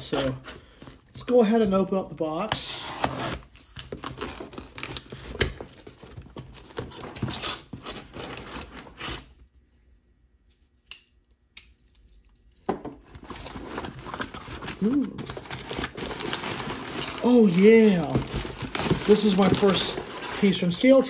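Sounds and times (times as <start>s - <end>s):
cardboard flaps scraping: 15.5s - 20.9s.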